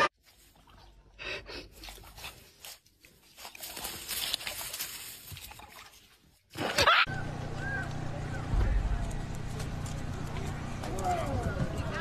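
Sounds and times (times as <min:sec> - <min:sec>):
animal rustling in dry grass: 0:01.7 - 0:06.3.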